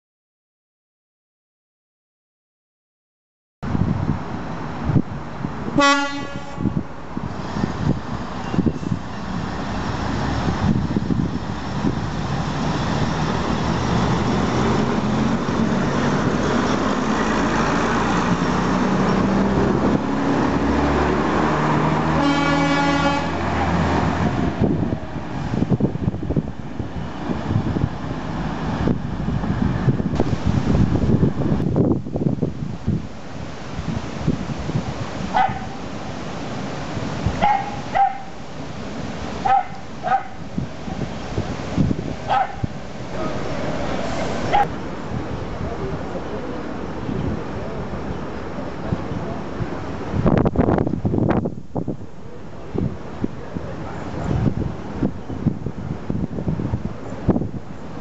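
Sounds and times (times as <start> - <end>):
wheel and rail noise: 4.1 - 58.0
diesel train engines running: 4.5 - 32.7, 33.4 - 51.2
train horn: 5.8 - 6.9, 22.1 - 23.7
small dog barking: 35.3 - 35.8, 37.4 - 38.4, 39.4 - 40.4, 42.3 - 43.4.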